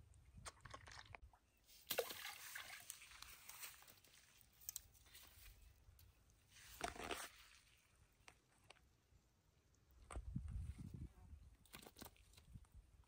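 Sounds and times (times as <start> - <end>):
wet weeds rustling: 1.7 - 7.9
faint water splash: 1.8 - 3.8.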